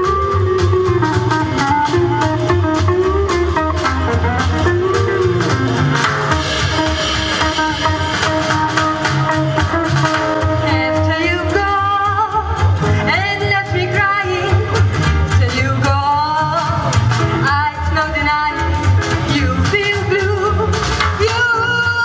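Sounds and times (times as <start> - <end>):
jazz accompaniment with steady beat: 0.0 - 22.0
woman singing with vibrato: 10.4 - 22.0.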